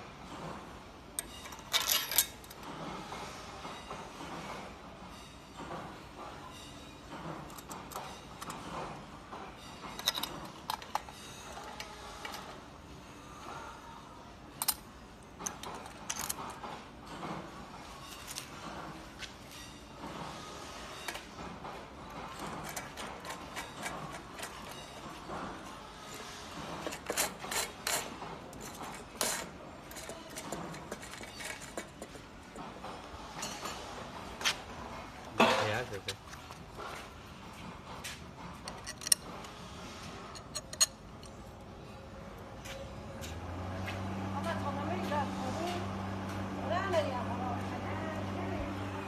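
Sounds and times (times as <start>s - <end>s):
metal parts rubbing and scraping: 1.2s - 5.4s, 6.4s - 13.7s, 17.8s - 37.6s, 38.2s - 42.1s
metal tubes clicking and clinking: 40.2s - 41.5s.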